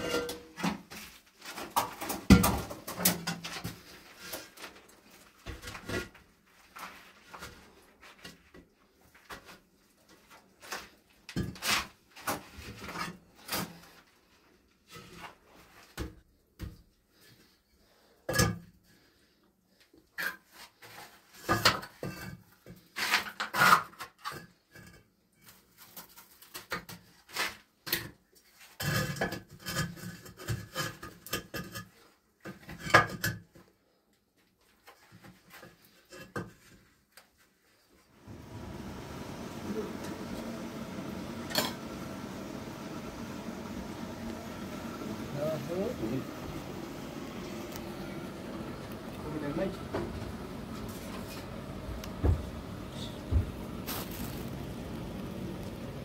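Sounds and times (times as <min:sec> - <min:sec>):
objects knocking and clattering: 0:00.0 - 0:03.9, 0:28.8 - 0:33.7.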